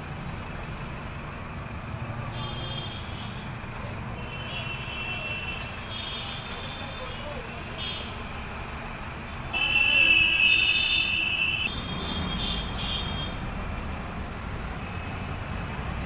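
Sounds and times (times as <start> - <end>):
street traffic rumble: 0.0 - 16.0
vehicle horn blaring: 9.5 - 13.4.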